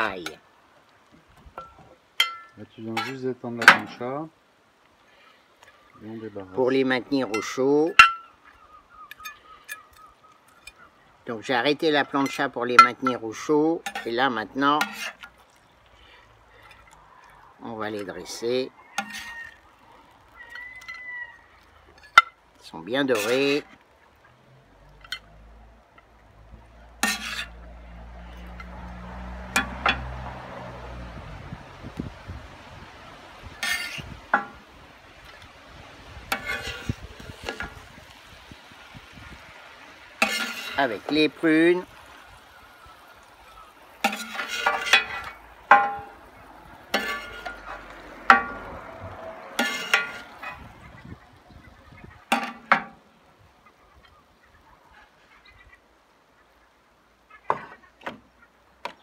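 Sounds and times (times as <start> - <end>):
metal spatula scraping steel plate: 14.8 - 15.3, 19.0 - 19.6, 23.1 - 23.6, 27.0 - 27.6, 33.6 - 34.6, 36.3 - 37.8, 40.2 - 41.2, 44.0 - 46.1, 46.9 - 48.6, 49.6 - 50.7
spatula clinking on ceramic dish: 46.9 - 47.6, 49.6 - 50.3.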